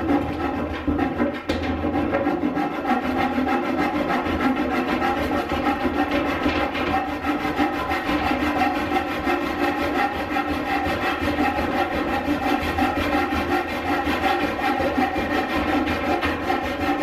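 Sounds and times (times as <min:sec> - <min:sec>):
handsaw cutting wood: 0:00.0 - 0:17.0.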